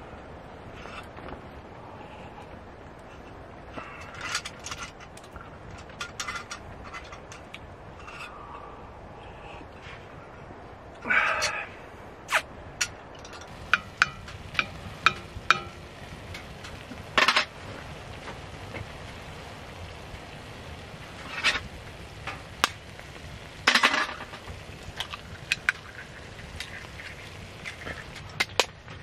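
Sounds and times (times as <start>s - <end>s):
spoon scraping a skillet: 13.2s - 17.6s
metal spoon tapping a pan: 13.4s - 15.8s
frying sizzle: 13.4s - 28.7s.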